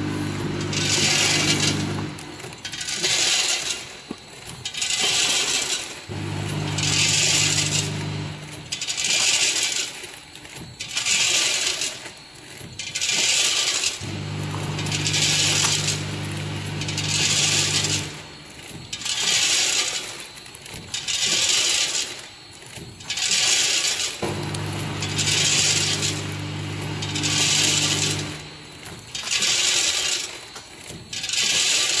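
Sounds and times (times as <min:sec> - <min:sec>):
low machine hum: 0:00.0 - 0:02.6, 0:06.1 - 0:08.9, 0:14.0 - 0:18.9, 0:24.2 - 0:29.2
packing machine hissing bursts: 0:00.0 - 0:32.0.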